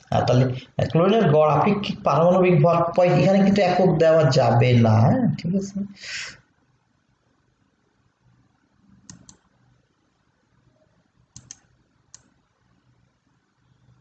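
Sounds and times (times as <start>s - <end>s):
faint low hum: 0.0s - 14.0s
computer mouse clicking: 9.0s - 9.5s, 11.3s - 12.4s.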